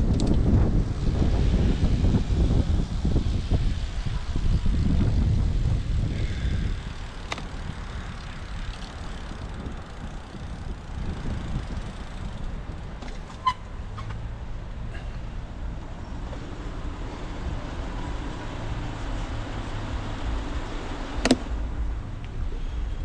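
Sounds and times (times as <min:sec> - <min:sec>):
car engines idling: 0:06.1 - 0:23.0.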